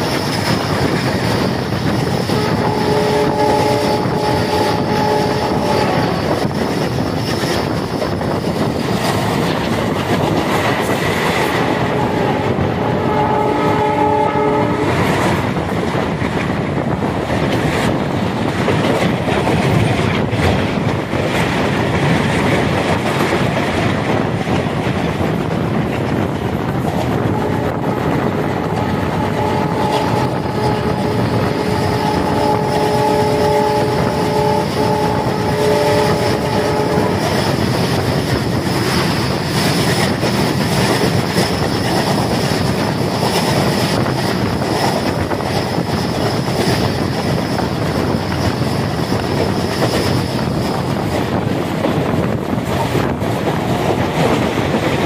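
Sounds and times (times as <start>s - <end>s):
train running at speed: 0.0s - 55.0s
multi-tone train horn: 2.3s - 6.5s, 11.4s - 15.4s, 27.0s - 37.7s.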